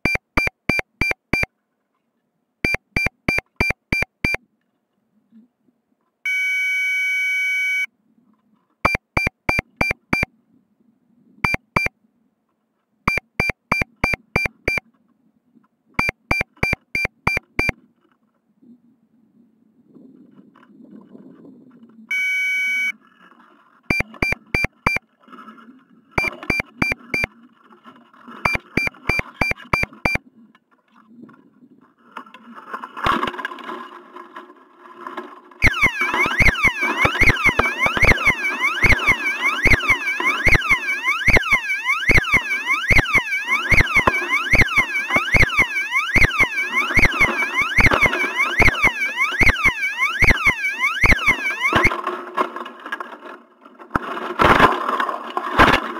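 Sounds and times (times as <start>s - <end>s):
electronic altimeter beeps: 0.0s - 1.5s, 2.6s - 4.4s, 6.3s - 7.9s, 8.8s - 10.3s, 11.4s - 11.9s, 13.1s - 14.8s, 16.0s - 17.8s, 22.1s - 23.0s, 23.9s - 25.0s, 26.2s - 27.3s, 28.4s - 30.2s, 35.6s - 52.0s
warbling alarm: 16.0s - 17.7s, 23.9s - 25.0s, 26.2s - 27.3s, 28.5s - 30.2s, 35.6s - 52.0s.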